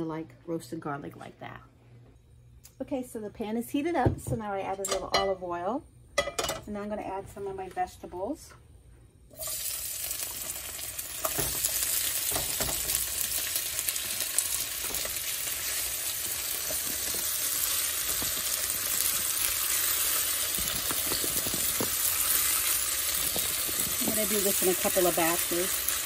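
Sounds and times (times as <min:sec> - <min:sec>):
vegetables frying in a skillet: 0:09.3 - 0:26.0.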